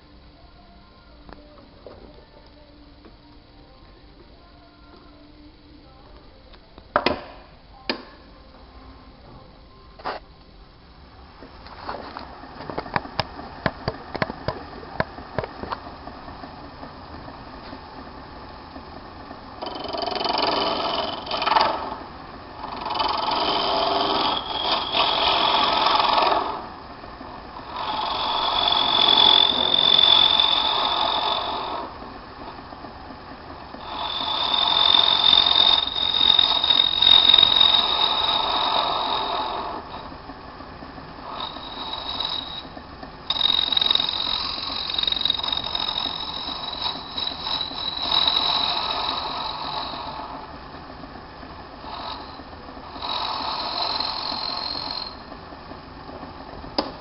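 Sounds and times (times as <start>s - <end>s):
lathe running: 10.9s - 57.0s
tool scraping spinning bone: 11.7s - 40.3s, 41.2s - 50.6s, 51.7s - 55.4s.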